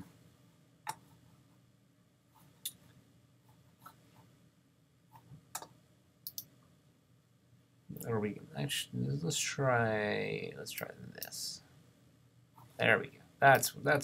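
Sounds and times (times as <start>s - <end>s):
computer mouse clicks: 5.2s - 6.5s.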